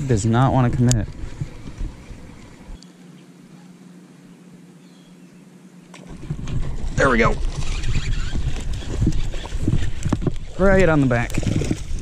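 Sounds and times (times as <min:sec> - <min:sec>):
fishing reel being wound: 0:07.5 - 0:10.1.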